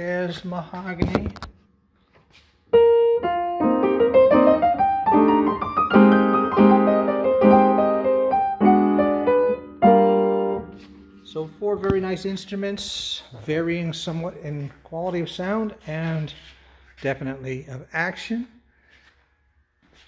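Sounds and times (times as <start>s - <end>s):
upright piano playing: 2.7s - 12.2s.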